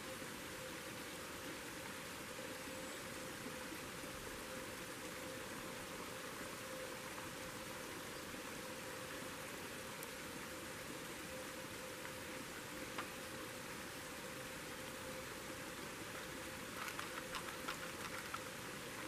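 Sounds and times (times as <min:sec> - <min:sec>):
constant hiss: 0:00.0 - 0:19.0
faint steady tone: 0:00.0 - 0:19.0
water trickling into pouch: 0:16.0 - 0:19.0.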